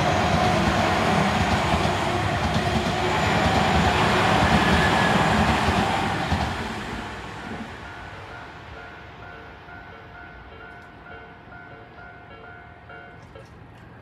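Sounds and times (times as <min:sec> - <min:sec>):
train wheels rumbling on rails: 0:00.0 - 0:09.9.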